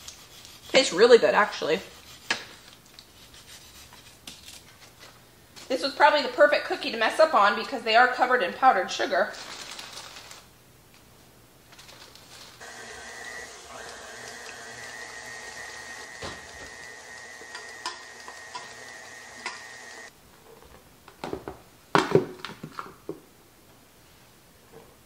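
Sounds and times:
stand mixer motor whining: 0:12.6 - 0:20.1.

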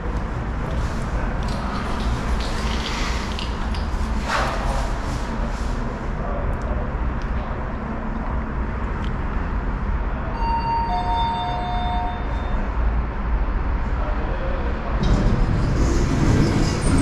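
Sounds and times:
elevator rumble: 0:00.0 - 0:17.0
electronic chime: 0:10.4 - 0:12.6.

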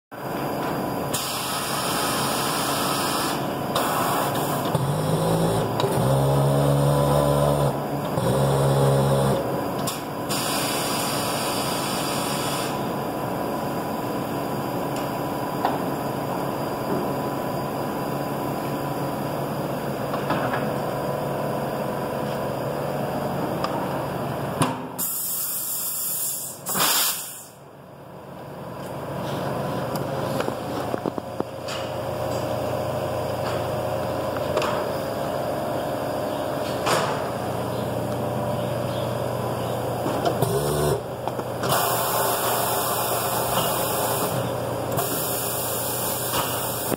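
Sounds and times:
shop hum: 0:00.1 - 0:46.9
air hiss: 0:01.1 - 0:04.5, 0:25.0 - 0:27.6
tire changer turntable motor: 0:04.6 - 0:09.6, 0:40.2 - 0:46.9.

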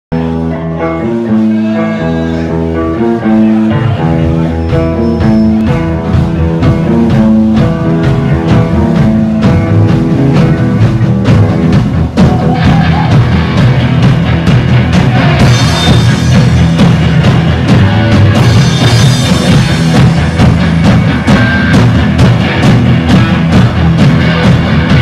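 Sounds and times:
bass guitar: 0:00.1 - 0:25.0
drums: 0:00.1 - 0:25.0
electric guitar: 0:00.1 - 0:25.0.

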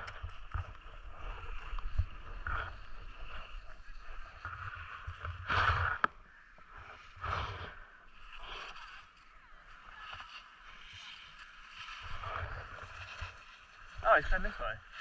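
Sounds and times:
wind rumble on microphone: 0:00.0 - 0:07.8
skis scraping over snow: 0:00.0 - 0:15.0.

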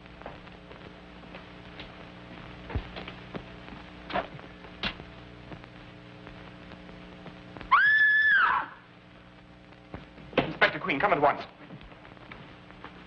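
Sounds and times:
film soundtrack hum and clicks: 0:00.0 - 0:13.0
woman screaming: 0:07.7 - 0:08.9.

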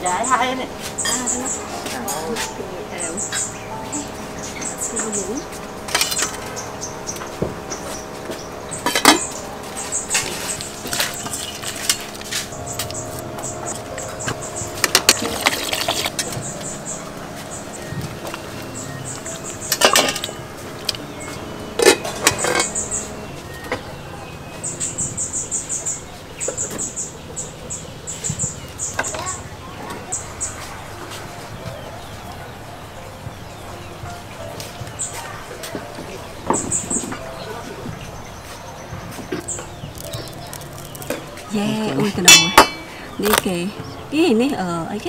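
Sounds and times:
pot lid clanking: 0:19.7 - 0:20.4, 0:42.2 - 0:43.5.

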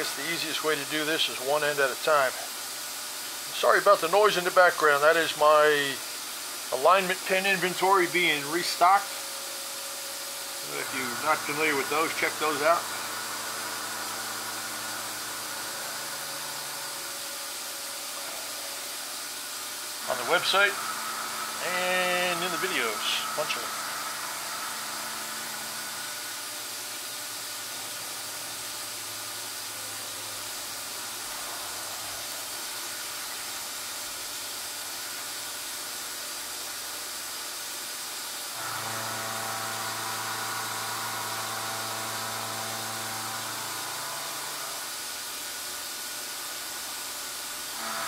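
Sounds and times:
motor hum with steady tones: 0:00.0 - 0:48.0
machine tool hissing: 0:05.8 - 0:28.7.

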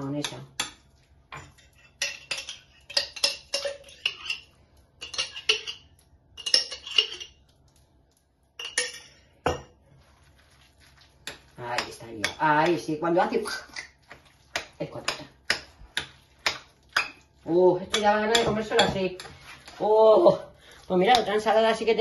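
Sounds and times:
spoon scraping and clinking glass: 0:01.4 - 0:07.4, 0:08.6 - 0:09.6.

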